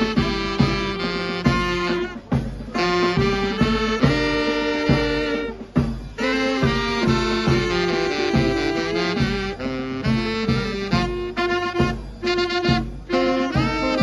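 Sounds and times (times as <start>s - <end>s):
band with saxophones and brass: 0.0s - 14.0s.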